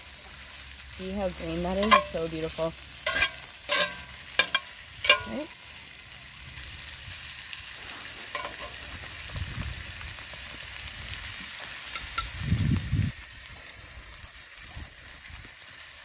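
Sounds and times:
meat sizzling in a skillet: 0:00.0 - 0:16.0
metal spatula clicking on pan: 0:01.8 - 0:02.2, 0:03.0 - 0:05.4.

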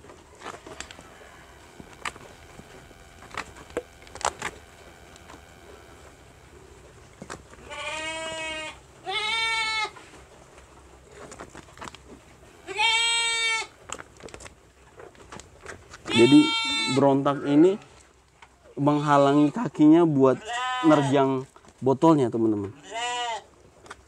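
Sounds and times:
faint clicks: 0:00.4 - 0:06.6
sheep bleating: 0:07.6 - 0:10.0, 0:12.6 - 0:13.7, 0:16.1 - 0:17.8, 0:20.3 - 0:21.3, 0:22.7 - 0:23.5.

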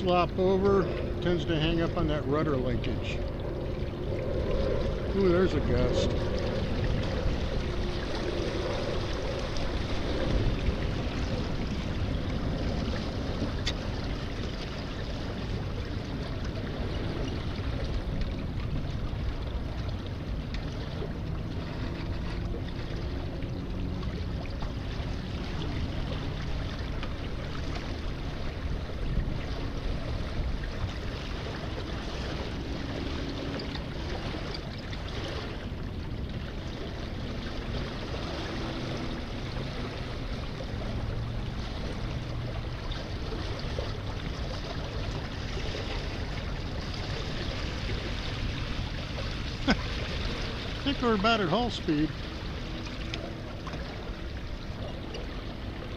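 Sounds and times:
wind rumbling on microphone: 0:00.0 - 0:50.9
water rushing along hulls: 0:00.0 - 0:55.9.

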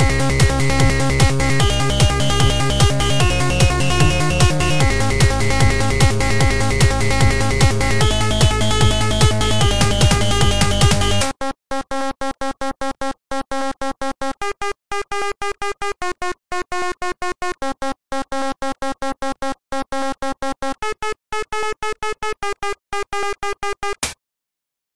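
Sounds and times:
chopped synth notes: 0:00.0 - 0:13.5.

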